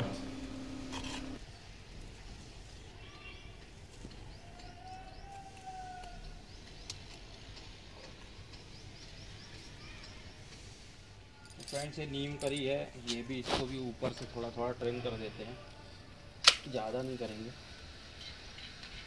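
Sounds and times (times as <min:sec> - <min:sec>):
low steady hum: 0:00.0 - 0:01.4
faint birds chirping: 0:00.0 - 0:16.4.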